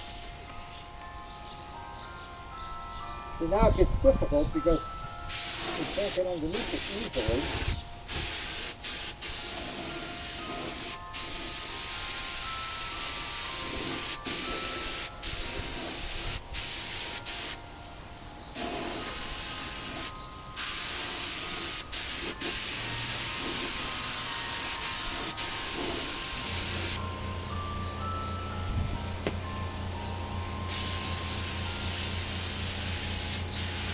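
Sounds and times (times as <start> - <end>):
paint spray gun hissing: 5.3 - 17.6, 18.5 - 27.6, 30.6 - 33.9
low steady hum: 25.7 - 33.9.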